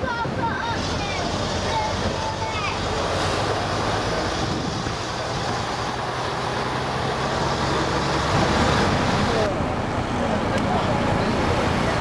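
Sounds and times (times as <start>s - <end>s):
wind rushing: 0.0s - 9.3s
bus engine running: 0.0s - 12.0s.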